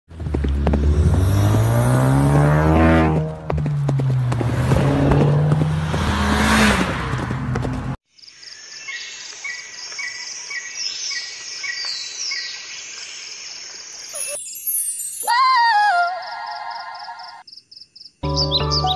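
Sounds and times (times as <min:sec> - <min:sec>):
race car engine revving: 0:00.1 - 0:08.0
tyre noise: 0:00.1 - 0:08.0.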